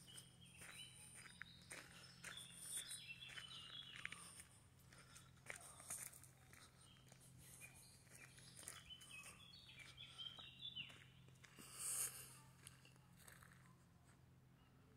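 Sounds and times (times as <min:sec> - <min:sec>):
small bird chirping: 0:00.0 - 0:04.5, 0:05.8 - 0:11.3
footsteps on gravel: 0:00.0 - 0:13.6.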